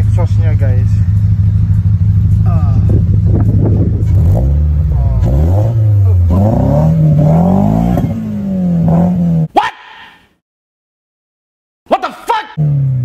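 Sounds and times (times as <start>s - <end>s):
car engine idling and revving: 0.0s - 9.5s, 12.6s - 13.0s.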